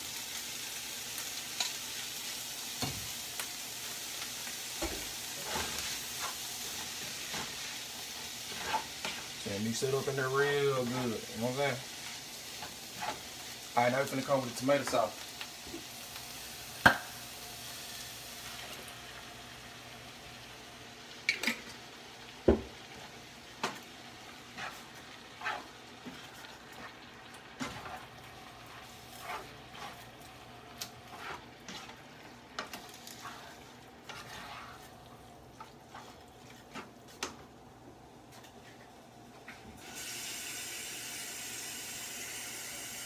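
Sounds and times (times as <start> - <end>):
food sizzling in a skillet: 0.0 - 38.8, 39.7 - 43.0
spoon knocking and scraping pan: 8.2 - 9.3, 12.6 - 13.3, 22.4 - 23.8, 24.5 - 27.0, 27.6 - 35.0.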